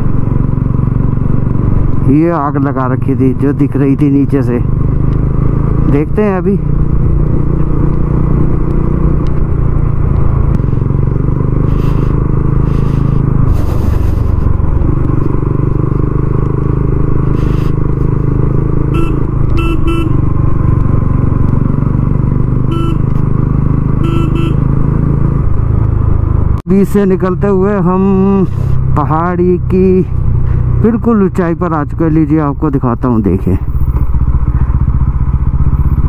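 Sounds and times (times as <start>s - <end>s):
motorcycle engine running: 0.0s - 36.0s
horn short beeps: 19.0s - 20.2s, 22.7s - 23.1s, 24.0s - 24.6s.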